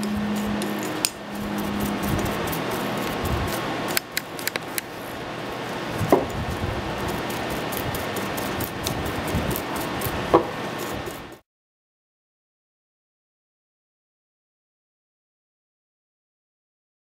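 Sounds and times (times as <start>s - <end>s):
brush scrubbing: 0.0s - 11.4s
sharp metal clicks: 3.9s - 4.9s.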